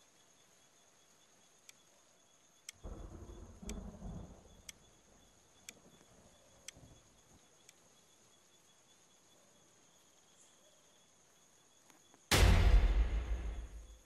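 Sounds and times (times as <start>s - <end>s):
crickets trilling: 0.0s - 14.0s
sharp ticks: 1.6s - 1.9s, 2.6s - 7.0s, 7.6s - 7.8s
low rumble: 2.8s - 4.8s, 12.3s - 14.0s.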